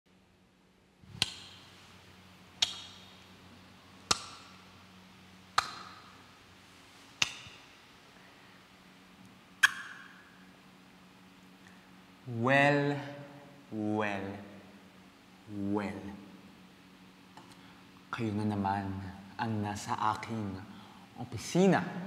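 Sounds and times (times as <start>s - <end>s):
faint electrical hum: 0.1s - 22.0s.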